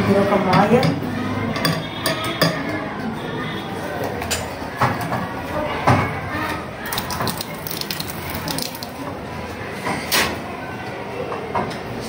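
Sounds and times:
tap water filling glass cylinder: 0:06.8 - 0:09.1.

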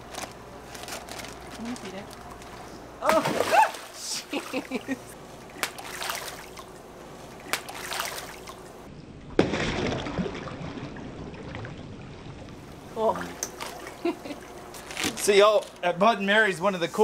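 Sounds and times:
water sloshing: 0:01.0 - 0:15.5
fish splashing at surface: 0:05.6 - 0:06.7, 0:07.3 - 0:08.8, 0:09.4 - 0:11.8.

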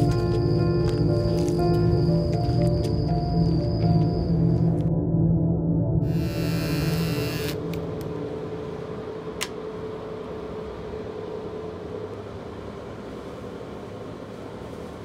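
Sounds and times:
low steady drone: 0:00.0 - 0:14.2.

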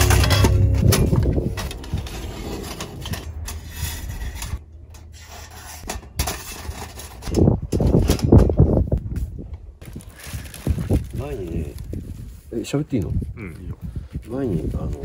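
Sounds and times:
metal clattering: 0:00.0 - 0:08.9
metal panels clinking and rattling: 0:00.0 - 0:09.0.

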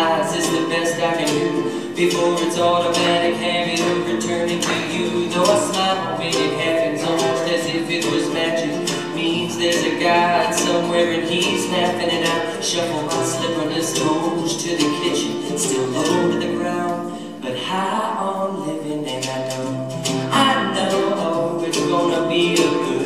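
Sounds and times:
upright double bass: 0:00.0 - 0:17.3
man singing: 0:00.0 - 0:23.0
strummed acoustic guitar: 0:00.0 - 0:23.0
ukulele: 0:00.0 - 0:23.0.

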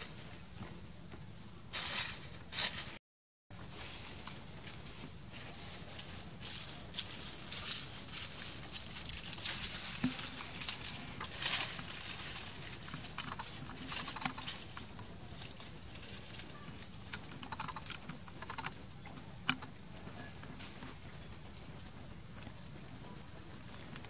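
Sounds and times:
leaves and twigs rustling: 0:01.7 - 0:03.0, 0:03.6 - 0:18.8.

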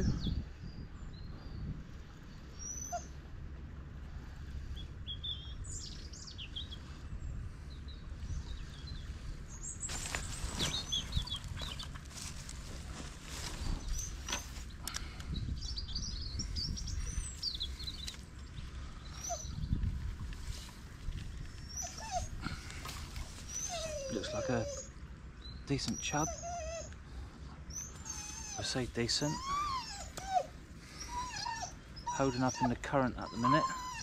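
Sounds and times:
steady low rumble: 0:00.0 - 0:25.7
small birds chirping: 0:04.7 - 0:34.0.

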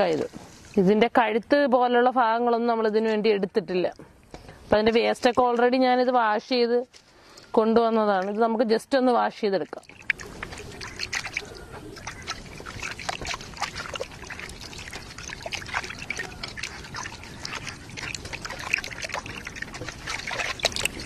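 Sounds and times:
water sloshing in a metal basin: 0:04.3 - 0:06.5, 0:07.6 - 0:21.0
hands rinsing raw chicken: 0:09.7 - 0:21.0.

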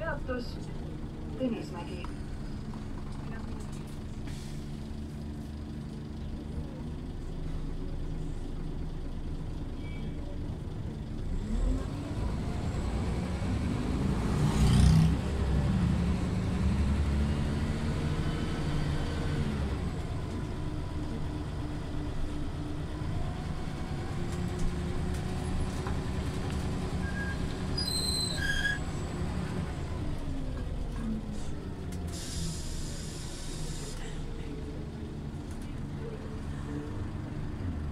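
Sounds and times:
bus engine hum: 0:00.0 - 0:37.9
brief hiss: 0:32.1 - 0:34.1.

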